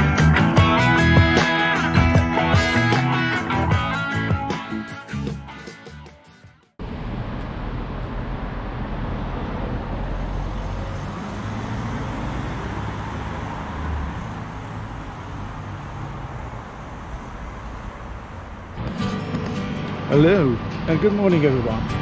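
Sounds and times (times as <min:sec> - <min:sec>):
road traffic rumble: 0:06.8 - 0:22.0.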